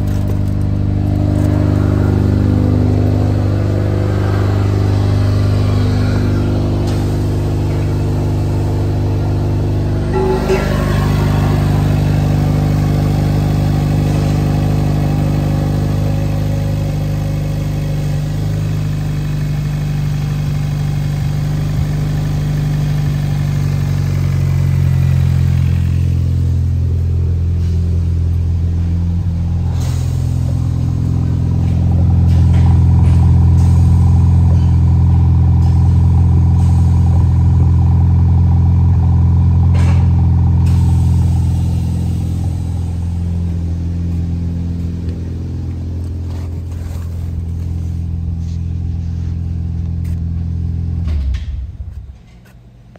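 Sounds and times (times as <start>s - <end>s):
car engine idling: 0.0s - 52.9s
low exhaust note: 0.0s - 52.9s.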